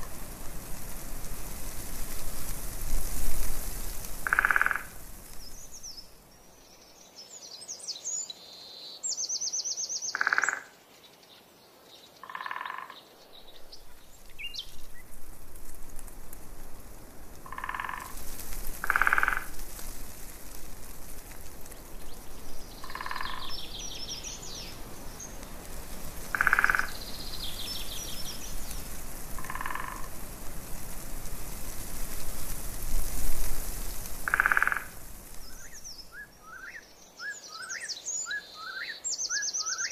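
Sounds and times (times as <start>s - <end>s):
short croaking calls: 4.2s - 5.0s, 10.1s - 10.7s, 12.2s - 13.0s, 17.4s - 18.2s, 18.8s - 19.6s, 22.8s - 23.7s, 26.3s - 27.0s, 29.4s - 30.1s, 34.2s - 35.0s.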